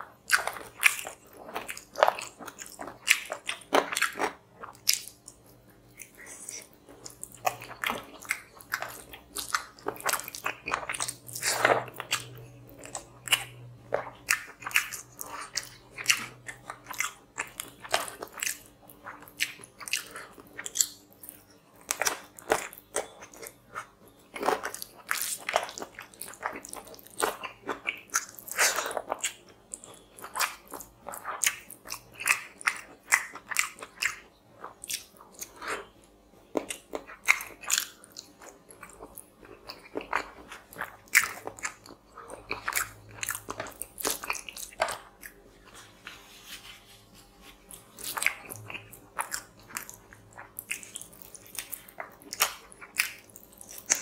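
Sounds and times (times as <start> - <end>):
person chewing and lip-smacking: 0.0 - 45.9, 47.4 - 54.0.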